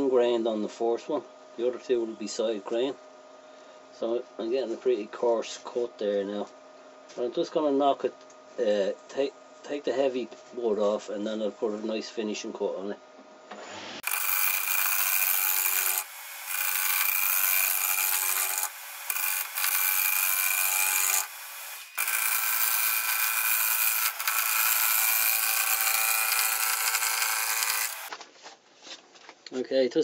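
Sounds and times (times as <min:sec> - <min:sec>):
lathe tool cutting wood: 0:14.0 - 0:28.1.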